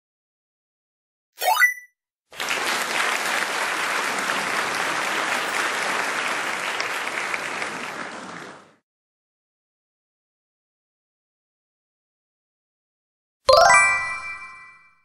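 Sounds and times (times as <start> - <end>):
applause sound effect: 2.3 - 8.8, 13.5 - 14.6.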